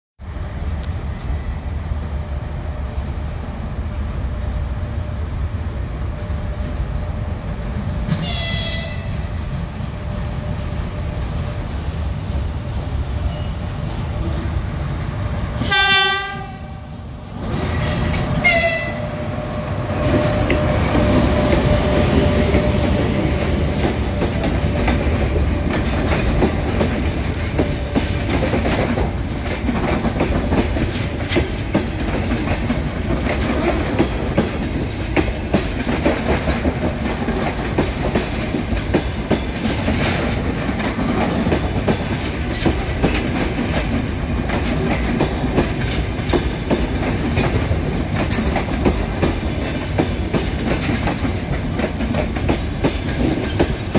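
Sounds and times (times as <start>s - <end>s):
train approaching rumble: 0.2s - 53.9s
train horn: 8.2s - 9.3s, 15.6s - 17.0s, 18.4s - 19.2s
wheels clicking over rail joints: 17.4s - 53.9s.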